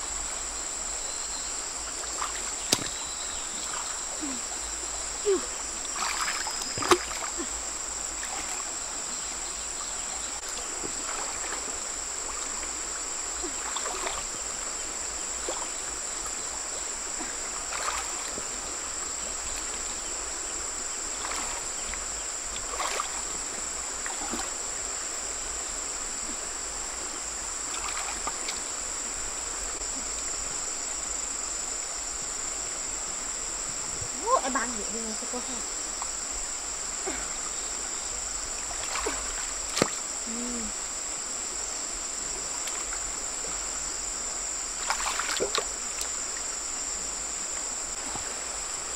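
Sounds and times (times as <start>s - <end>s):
insects droning: 0.0s - 48.9s
stream water sloshing: 0.0s - 48.9s
stones set down in water: 2.3s - 3.0s, 38.9s - 40.0s.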